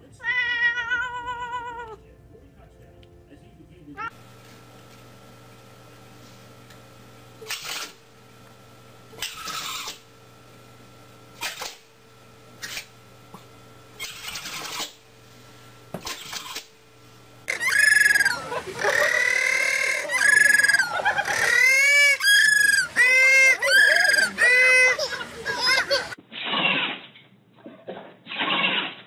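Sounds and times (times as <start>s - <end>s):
high-pitched animal calls: 9.2s - 10.0s, 14.0s - 14.9s, 17.5s - 26.2s.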